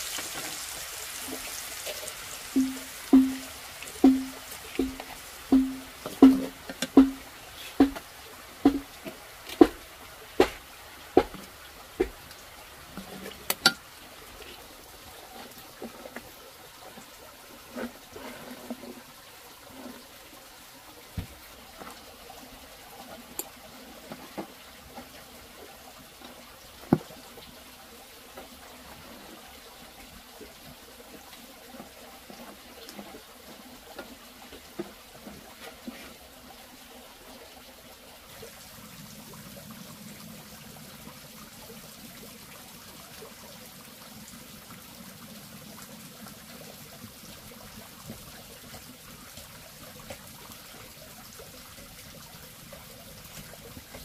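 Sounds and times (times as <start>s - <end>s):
water trickling: 0.0s - 54.0s
clicks and knocks: 2.6s - 7.2s
sharp knocks: 2.6s - 8.0s, 8.6s - 8.9s.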